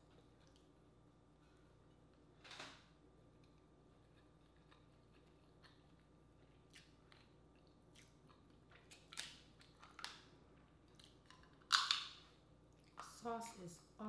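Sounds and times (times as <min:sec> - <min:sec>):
chewing smacks: 0:03.4 - 0:12.2
crab shell cracking: 0:08.0 - 0:10.3, 0:11.0 - 0:12.2.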